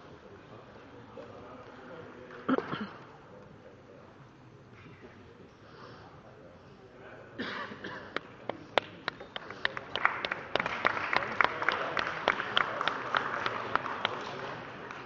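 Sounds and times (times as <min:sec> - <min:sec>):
crowd applause: 0:08.2 - 0:15.0.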